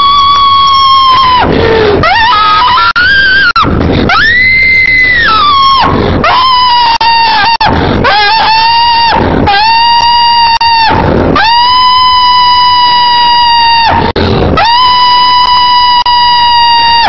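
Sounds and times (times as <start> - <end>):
person screaming: 0.0 - 17.0
gasping breaths: 1.4 - 2.1, 3.8 - 4.1, 5.9 - 6.2, 7.7 - 8.1, 14.0 - 14.6.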